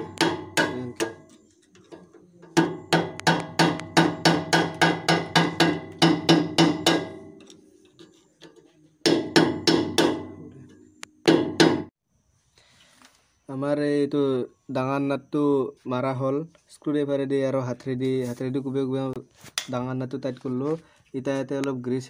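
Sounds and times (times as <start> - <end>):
screwdriver striking metal nut: 0.0 - 11.9.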